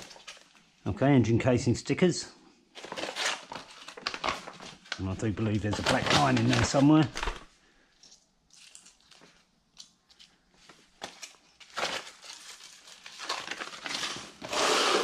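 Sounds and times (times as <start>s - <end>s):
paper envelope crinkling: 0.0s - 0.8s, 2.8s - 14.7s.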